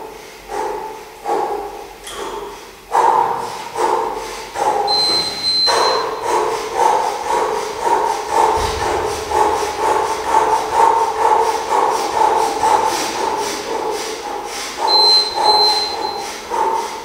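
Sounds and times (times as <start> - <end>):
short high beep: 4.9 - 6.2, 14.9 - 16.2.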